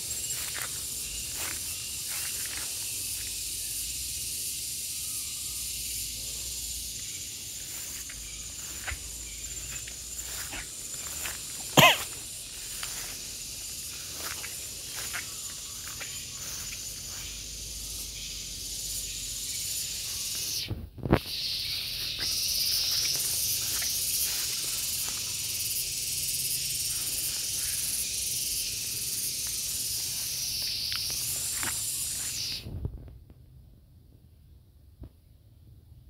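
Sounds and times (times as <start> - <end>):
cicadas buzzing: 0.0 - 33.0.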